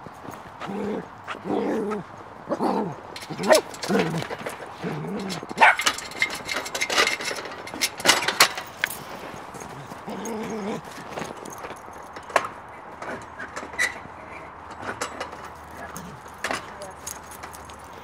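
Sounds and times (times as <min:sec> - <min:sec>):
dogs scuffling in snow: 0:08.8 - 0:11.8
dog whining: 0:10.0 - 0:11.0.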